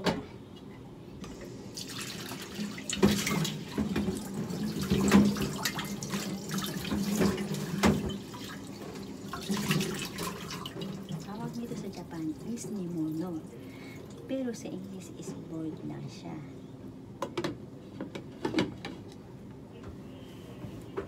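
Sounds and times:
water running and splashing: 1.8 - 13.4.

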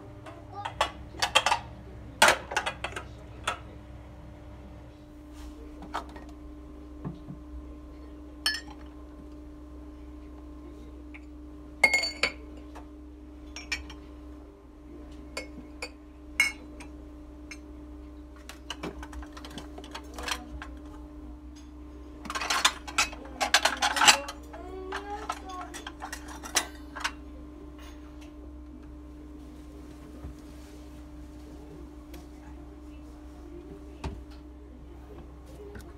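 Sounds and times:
steady low hum: 0.0 - 35.9
dishes and glasses clinking: 0.6 - 3.6, 8.4 - 8.9, 11.8 - 12.8, 13.5 - 14.1, 15.3 - 17.7.

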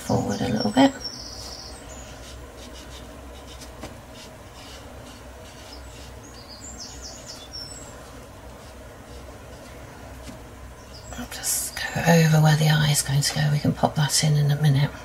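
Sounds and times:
low steady hum: 0.0 - 15.0
brush scratching on rough paper: 1.2 - 10.3.

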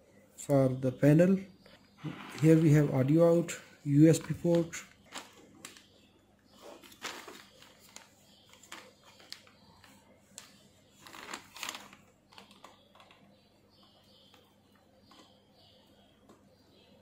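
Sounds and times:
plastic sheet crinkling: 4.1 - 5.9, 6.6 - 13.2.

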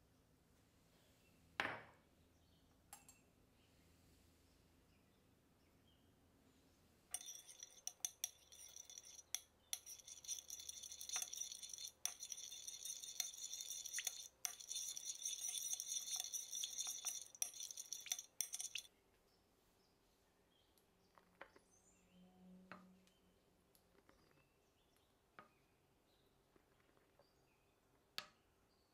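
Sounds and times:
utensil beating in mixing bowl: 7.1 - 18.9.

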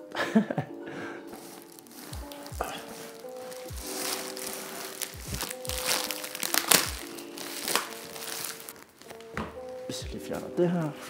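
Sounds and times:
lo-fi music with soft kick drum: 0.0 - 11.0
plastic packaging crinkling: 1.3 - 9.4.

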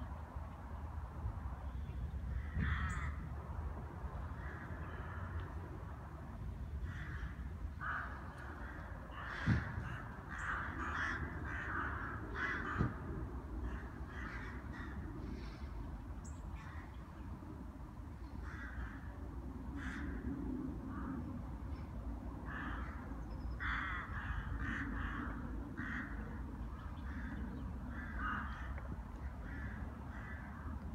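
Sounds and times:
steady low rumble: 0.0 - 30.9
rooks cawing: 2.3 - 3.3, 4.3 - 5.6, 6.8 - 15.8, 16.6 - 17.0, 18.3 - 21.3, 22.4 - 30.9.

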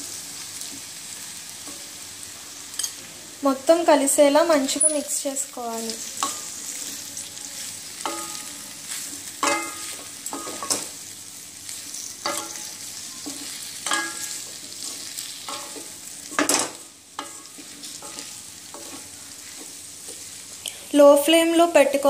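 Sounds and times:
food sizzling in oil: 0.0 - 22.0
spatula scraping and clinking pan: 9.4 - 10.8, 11.9 - 20.2.

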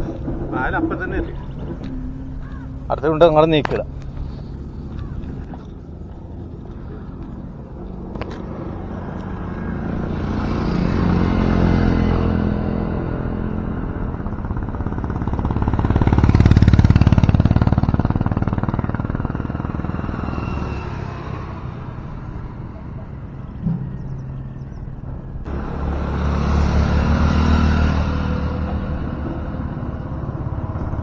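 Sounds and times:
motorcycles passing by: 0.0 - 31.0.

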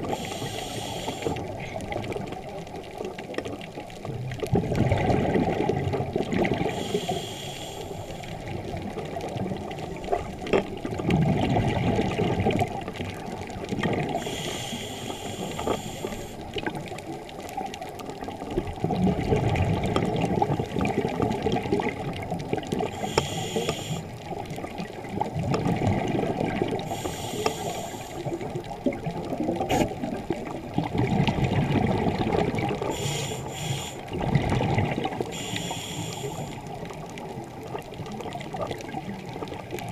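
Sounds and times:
regulator inhale hiss: 0.0 - 1.6, 6.6 - 8.6, 14.1 - 16.5, 22.9 - 24.2, 26.8 - 28.4, 32.8 - 34.1, 35.2 - 36.7
exhaled air bubbling underwater: 0.0 - 39.9.

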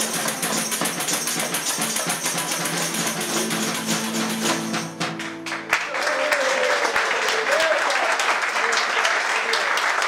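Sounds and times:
jingling percussion: 0.0 - 5.1
guitar: 0.0 - 6.3.

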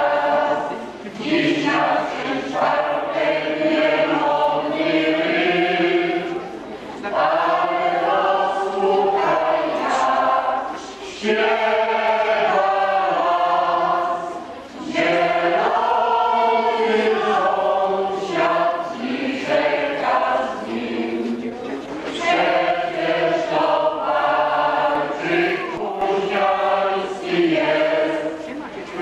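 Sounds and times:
mixed choir singing a waltz: 0.0 - 29.0.

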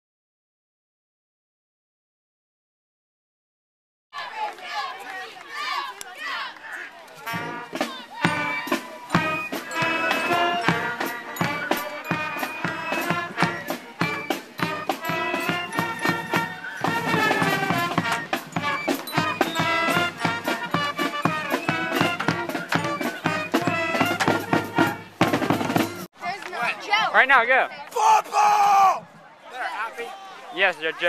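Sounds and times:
marching band playing: 4.2 - 26.1
steady drumbeat: 7.3 - 26.1.

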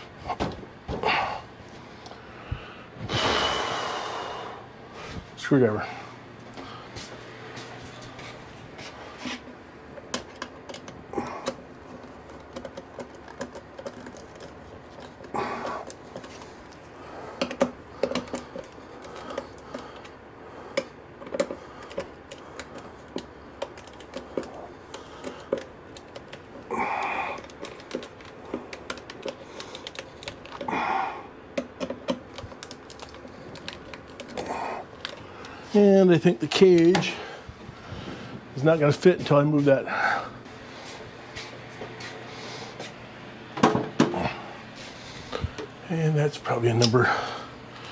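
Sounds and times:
screwdriver clicks and taps: 17.4 - 20.1, 27.4 - 30.7, 31.6 - 34.4.

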